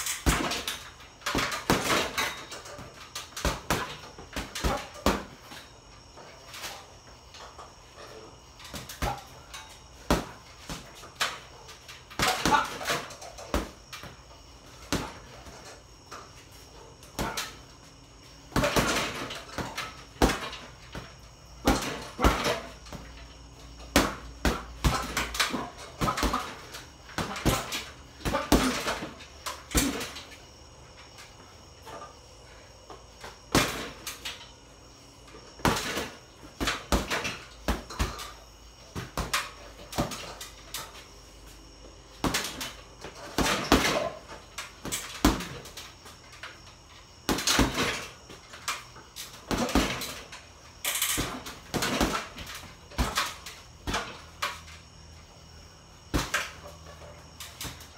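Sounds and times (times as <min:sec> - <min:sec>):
boxing gloves punching heavy bag: 0:00.2 - 0:05.4, 0:12.1 - 0:13.8, 0:18.5 - 0:23.0, 0:23.9 - 0:30.2, 0:49.4 - 0:50.2, 0:51.2 - 0:54.2.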